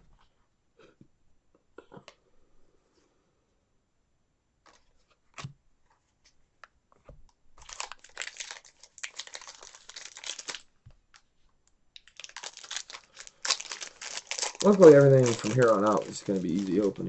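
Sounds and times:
wrapper being torn and crinkled: 0:07.6 - 0:11.2, 0:12.0 - 0:17.0.

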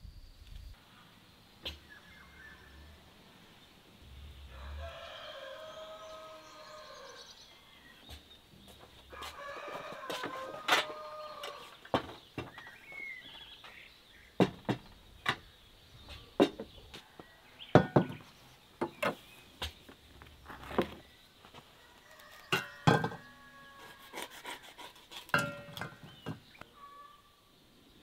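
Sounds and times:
dishes and utensils knocking: 0:17.8 - 0:18.2, 0:22.5 - 0:23.3, 0:25.3 - 0:26.4.

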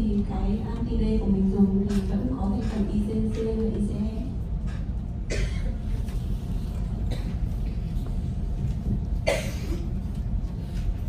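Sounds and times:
low room rumble: 0:00.0 - 0:11.0
person coughing: 0:05.3 - 0:06.0, 0:07.0 - 0:07.8, 0:09.2 - 0:10.0.

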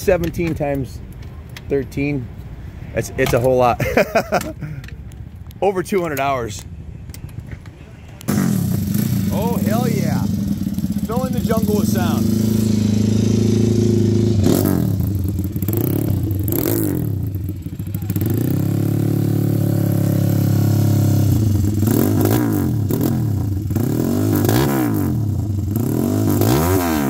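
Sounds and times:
motorcycle engine revving: 0:08.3 - 0:27.0.

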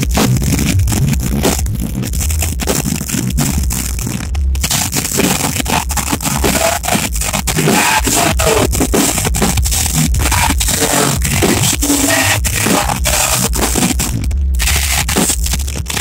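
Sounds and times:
distorted rock band playing live: 0:00.0 - 0:16.0
lead vocal singing: 0:07.6 - 0:09.0, 0:10.2 - 0:13.8.

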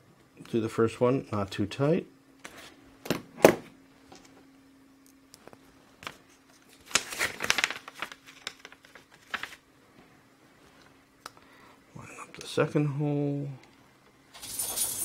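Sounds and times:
paper rustling and crinkling: 0:06.0 - 0:09.6.

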